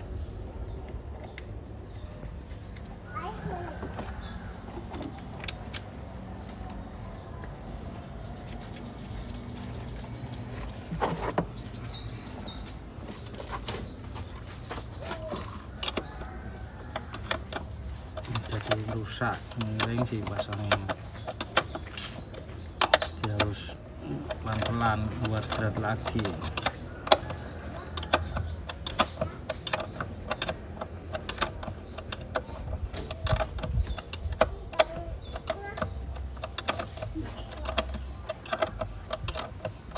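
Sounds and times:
small birds chirping: 0.0 - 39.9
sharp clicks and knocks: 8.4 - 39.9.

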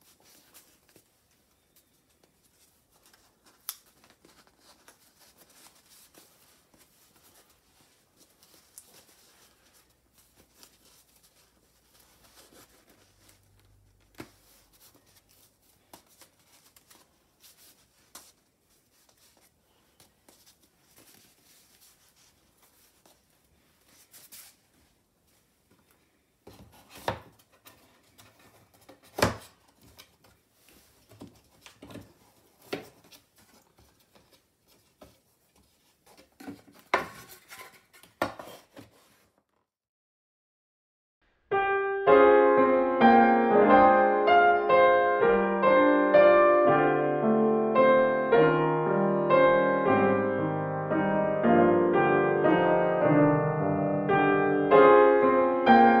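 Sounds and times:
scroll rustling as it's rolled: 0.0 - 39.6.

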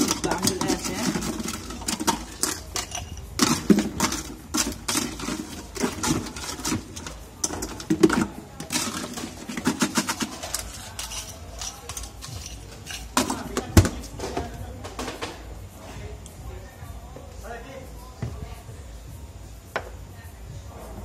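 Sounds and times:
ice cubes clattering: 0.0 - 14.2.

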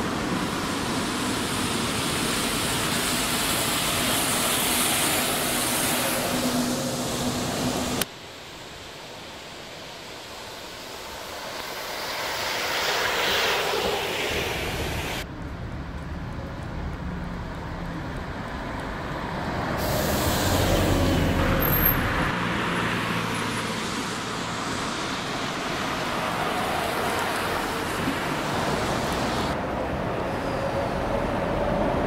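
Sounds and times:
bus engine hum: 0.0 - 8.1, 11.6 - 32.0
tyre hiss on wet road: 0.0 - 15.2, 19.7 - 29.6
buses driving past: 0.0 - 32.0.

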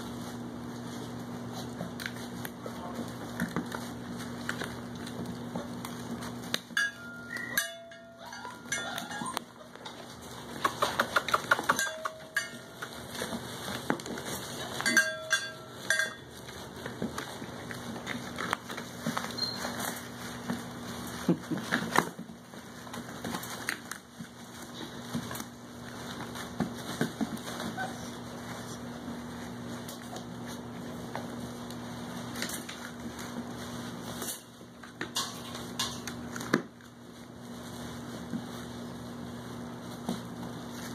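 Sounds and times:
puppies whining and yelping: 7.1 - 12.5, 26.8 - 28.9.

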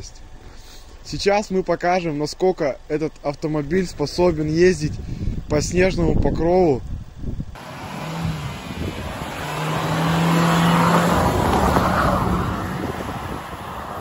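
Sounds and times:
car engine under load: 7.5 - 14.0.

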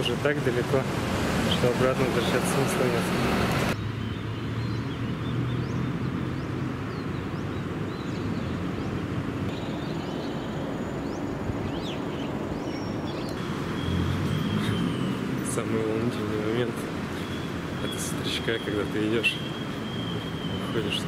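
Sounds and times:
birds chirping: 0.0 - 21.0
city traffic hum: 0.0 - 21.0.

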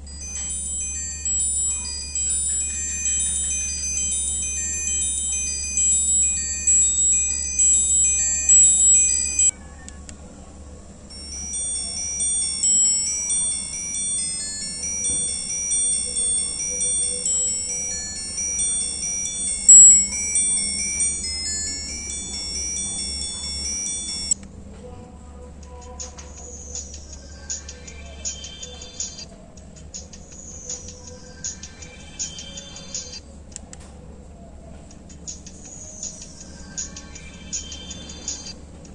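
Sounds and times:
phone ringtone melody: 0.1 - 9.5, 11.1 - 24.4.

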